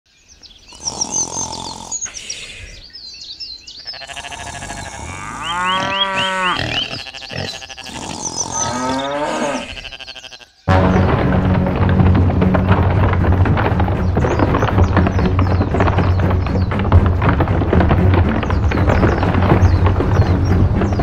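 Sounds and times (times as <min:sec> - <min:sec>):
cow mooing: 0:03.8 - 0:10.6.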